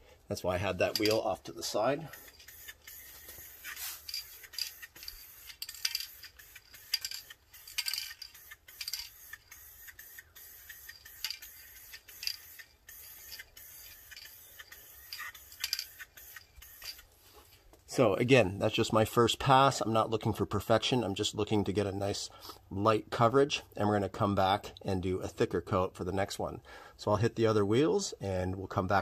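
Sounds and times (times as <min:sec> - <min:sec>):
spray paint can hissing: 0:02.0 - 0:17.1.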